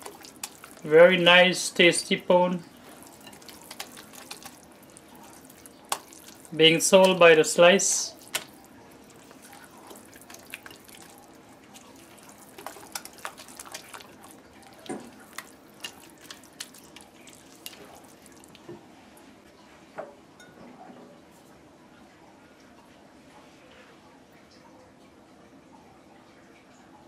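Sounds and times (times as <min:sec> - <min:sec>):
spatula stirring wet mixture: 0:00.0 - 0:18.7.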